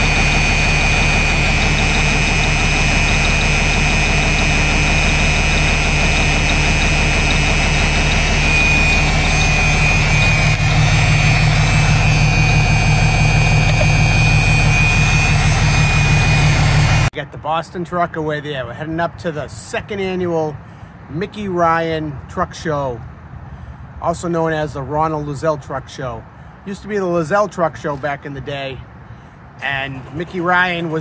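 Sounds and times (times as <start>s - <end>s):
diesel truck engine running: 0.0s - 17.1s
high whine: 0.0s - 17.1s.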